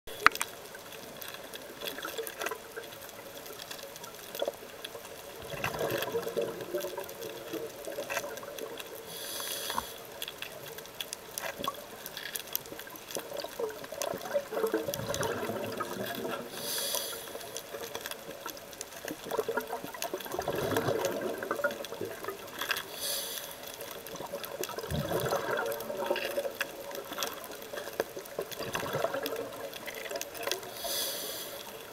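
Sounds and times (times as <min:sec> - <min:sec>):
faint clicks: 0:00.1 - 0:31.9
exhaled bubbles gurgling: 0:00.2 - 0:31.9
regulator hissing inhalation: 0:09.1 - 0:10.0, 0:16.5 - 0:17.6, 0:22.9 - 0:23.6, 0:30.7 - 0:31.7.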